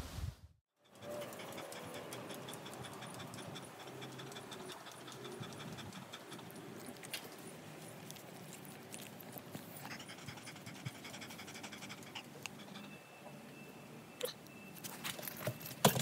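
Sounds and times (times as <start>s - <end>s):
faint outdoor ambience: 0.0s - 16.0s
fast steady ticking: 0.9s - 6.8s.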